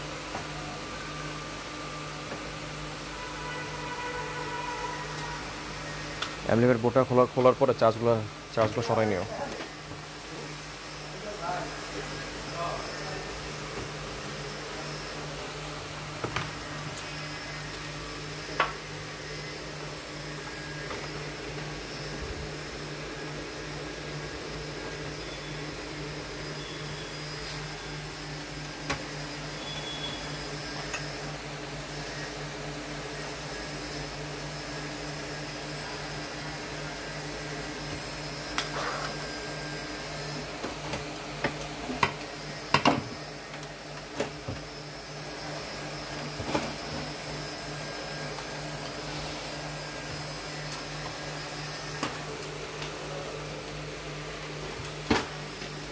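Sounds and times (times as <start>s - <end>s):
machine-like noise: 9.5s - 40.6s.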